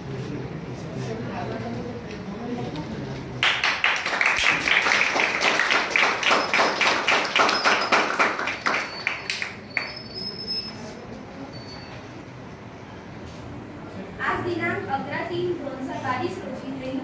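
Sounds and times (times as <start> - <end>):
people clapping: 3.4 - 10.3.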